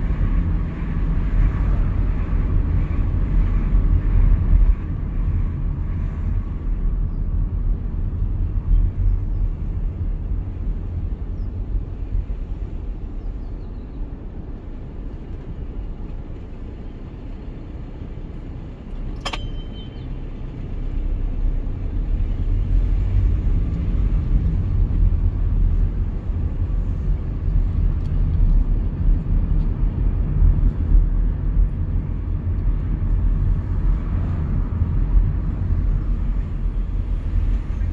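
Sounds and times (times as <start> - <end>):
car engine and tyres rumbling: 0.0 - 37.9
sharp click: 19.1 - 19.8.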